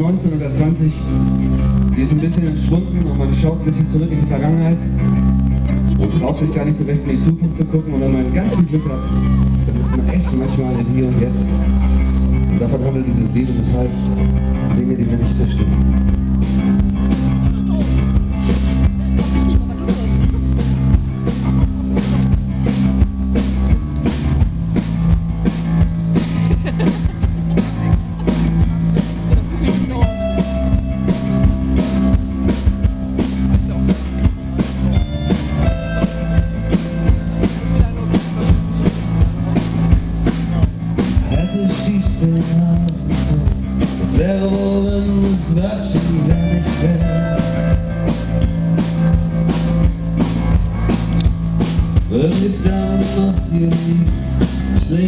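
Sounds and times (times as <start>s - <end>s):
live band playing: 0.0s - 55.0s.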